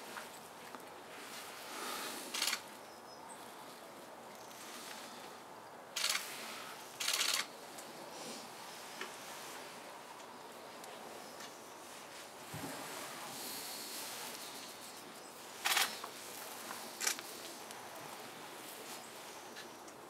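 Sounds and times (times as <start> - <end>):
faint outdoor background noise: 0.0 - 20.0
camera shutters firing: 2.4 - 2.6, 7.0 - 7.5, 15.6 - 16.0.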